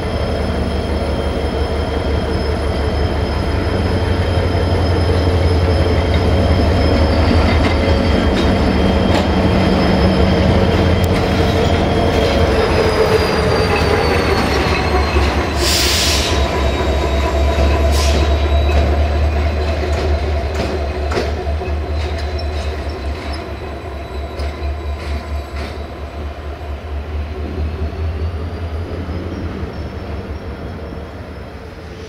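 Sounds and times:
diesel locomotive engine drone: 0.0s - 32.0s
wheel squeal: 0.1s - 20.0s, 28.3s - 32.0s.

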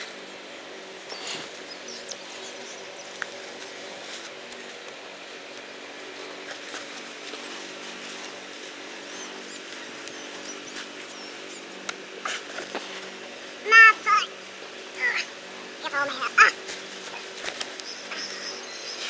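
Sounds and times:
steady low hum: 0.0s - 19.0s
faint high bird chirps: 17.8s - 19.0s.

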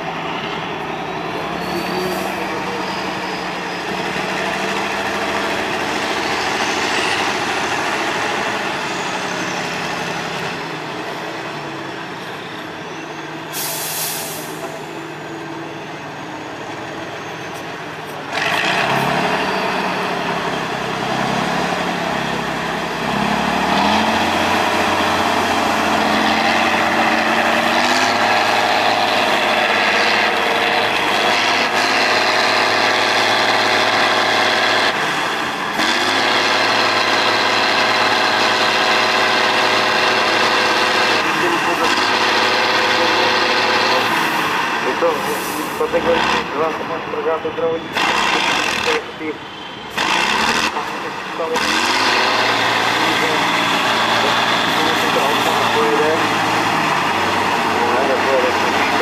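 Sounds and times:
truck diesel engine revving: 0.0s - 59.0s.

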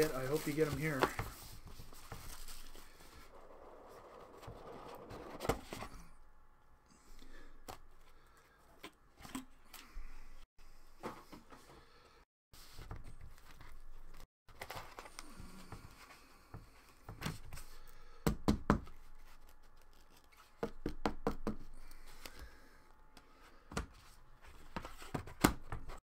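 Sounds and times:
cards rustling: 0.0s - 3.2s.

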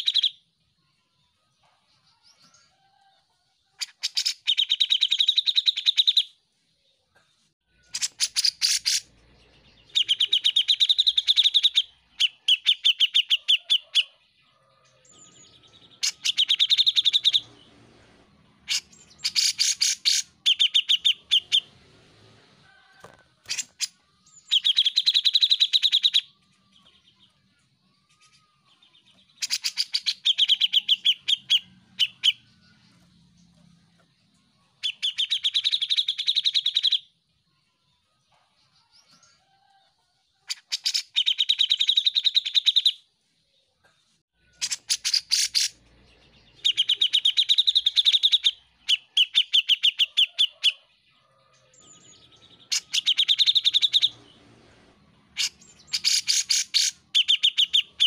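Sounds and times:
bird singing chattering trills: 0.0s - 0.4s, 7.8s - 14.2s, 15.0s - 17.6s, 18.6s - 21.7s, 23.4s - 33.8s, 34.6s - 37.1s, 44.4s - 50.9s, 51.7s - 54.4s, 55.3s - 58.0s.

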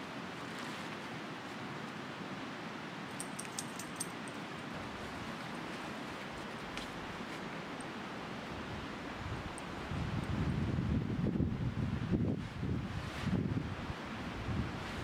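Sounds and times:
river rushing: 0.0s - 10.6s.

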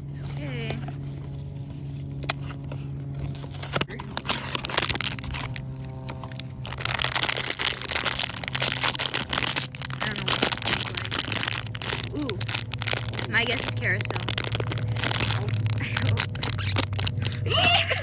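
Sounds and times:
foil bag crinkling: 0.0s - 18.0s
steady low hum: 0.0s - 18.0s.

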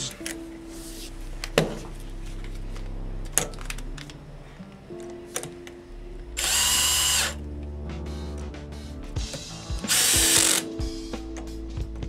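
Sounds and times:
cordless drill running: 6.4s - 7.4s, 9.9s - 10.7s.

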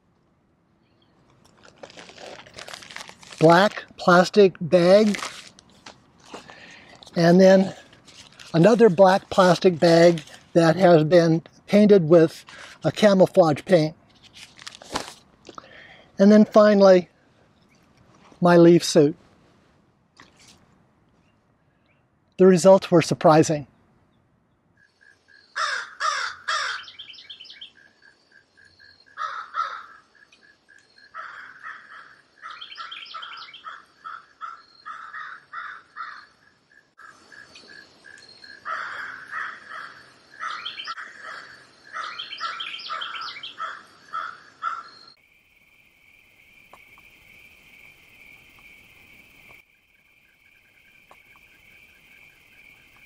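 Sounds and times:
birds singing and calling: 23.7s - 45.2s.

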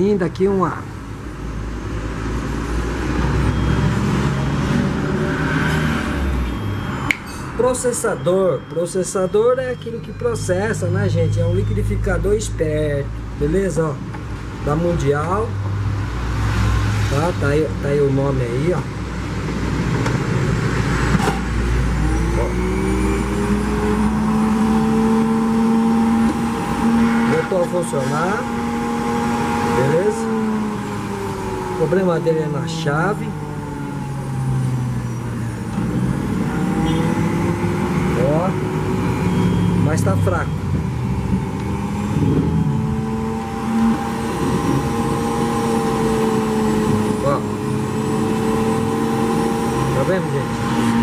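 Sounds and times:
electric juicer motor whine: 28.5s - 31.9s, 41.4s - 51.0s.

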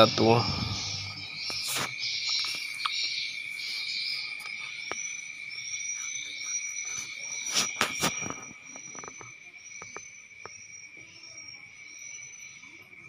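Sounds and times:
short higher chirps: 0.0s - 2.9s
high insect-like chirring: 0.0s - 13.0s.

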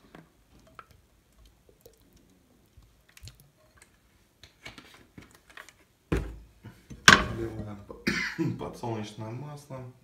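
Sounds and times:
quiet clicks and handling noise: 0.1s - 5.9s.

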